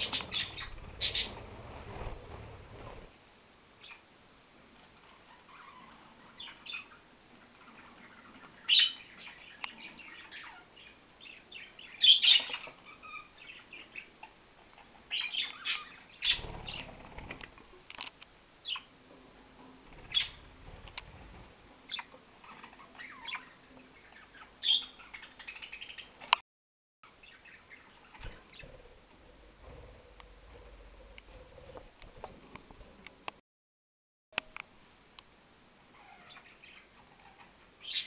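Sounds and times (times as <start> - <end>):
budgerigars chirping: 0.0 - 1.4, 7.6 - 11.0, 21.9 - 26.1.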